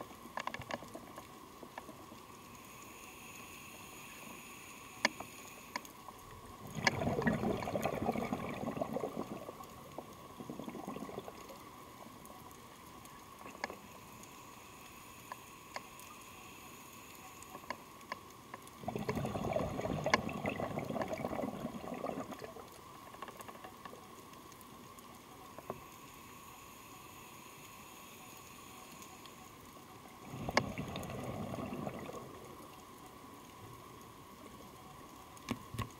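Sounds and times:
faint sharp clicks: 0:00.0 - 0:07.0, 0:11.3 - 0:19.2, 0:22.4 - 0:31.1, 0:32.1 - 0:35.9
rush of bubbles underwater: 0:06.6 - 0:11.8, 0:18.8 - 0:22.8, 0:30.2 - 0:32.7.

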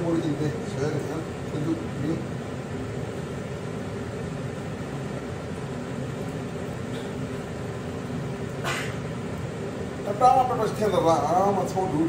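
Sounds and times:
kitchen hum: 0:00.0 - 0:12.0.

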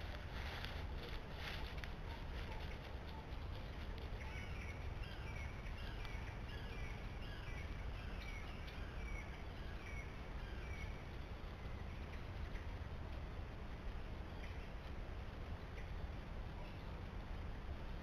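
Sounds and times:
bird calling: 0:00.0 - 0:11.0
steady low rumble: 0:00.0 - 0:18.0.

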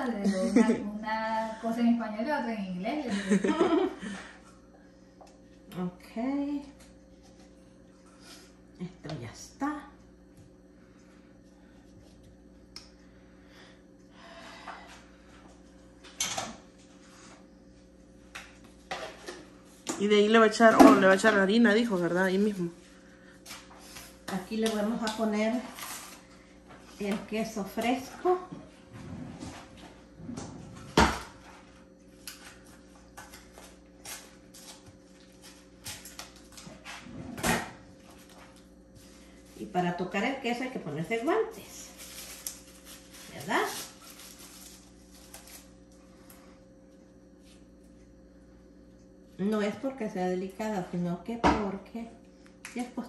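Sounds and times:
faint hum: 0:00.0 - 0:53.0
cheese crumbling clicks and rustles: 0:41.9 - 0:46.0.

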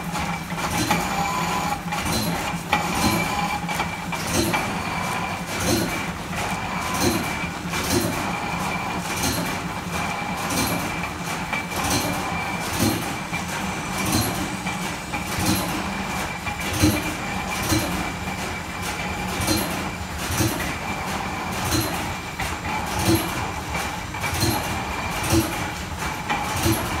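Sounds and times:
lathe mechanical hum: 0:00.0 - 0:27.0
regular mechanical click: 0:00.1 - 0:27.0.

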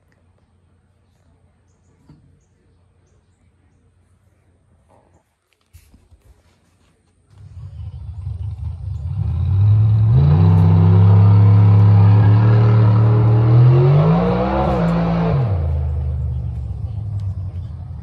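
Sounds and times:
engine running: 0:07.3 - 0:18.0.

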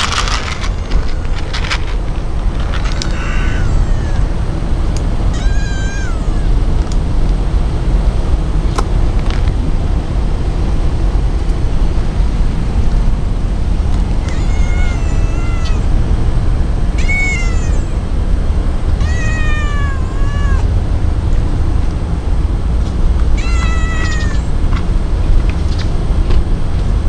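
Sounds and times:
cat meowing: 0:00.0 - 0:02.0, 0:02.7 - 0:04.5, 0:05.2 - 0:06.6, 0:14.2 - 0:16.0, 0:16.9 - 0:18.1, 0:19.0 - 0:20.7, 0:23.3 - 0:24.6.

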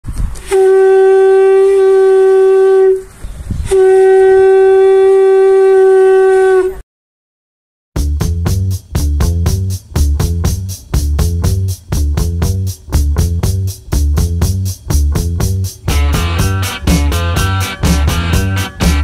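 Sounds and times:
blown horn blasts: 0:00.4 - 0:03.1, 0:03.7 - 0:06.8, 0:15.9 - 0:19.0
music track with steady beat: 0:08.0 - 0:19.0.

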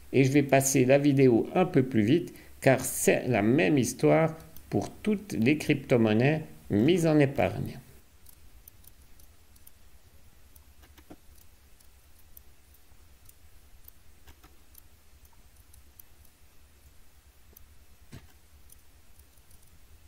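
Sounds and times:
low steady hum: 0:00.0 - 0:20.0
computer mouse clicks: 0:08.2 - 0:09.8, 0:10.5 - 0:16.4, 0:17.5 - 0:19.8.

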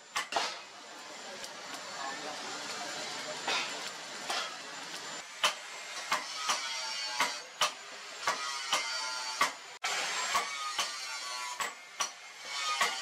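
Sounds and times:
hammer striking metal on anvil: 0:05.4 - 0:09.6, 0:10.3 - 0:13.0.

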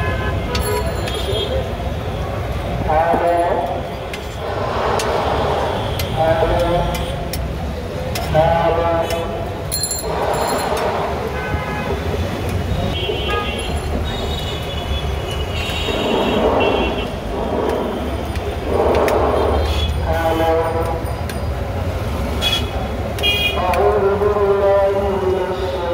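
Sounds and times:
traffic engine rumble: 0:00.0 - 0:25.9
voices: 0:00.5 - 0:13.3, 0:22.8 - 0:25.9
vehicle horn toots: 0:13.0 - 0:14.7, 0:22.4 - 0:23.6.

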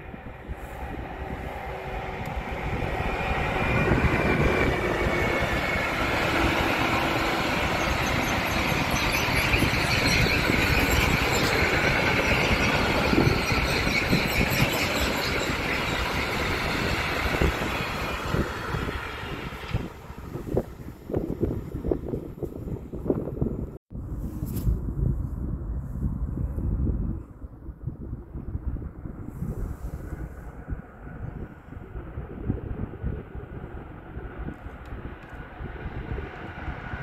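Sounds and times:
train wheels rumbling on rails: 0:00.0 - 0:23.7
faint high wheel squeal: 0:00.5 - 0:19.8.

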